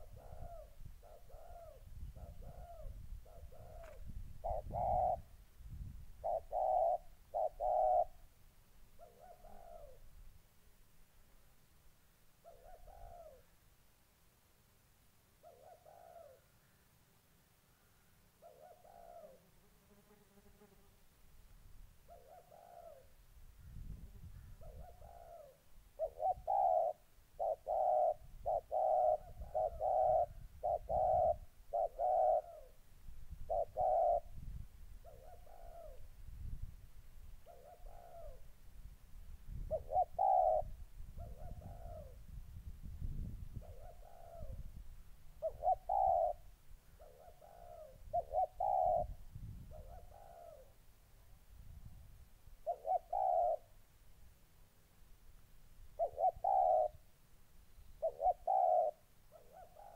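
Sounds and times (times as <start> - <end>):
doves cooing: 0.0 - 5.4, 6.2 - 8.3, 9.0 - 10.1, 12.4 - 13.5, 15.4 - 16.5, 17.8 - 19.4, 22.1 - 23.2, 24.3 - 32.8, 33.4 - 36.1, 37.4 - 38.5, 39.6 - 42.2, 43.6 - 44.7, 45.4 - 50.8, 52.6 - 53.7, 56.0 - 57.0, 58.0 - 59.9.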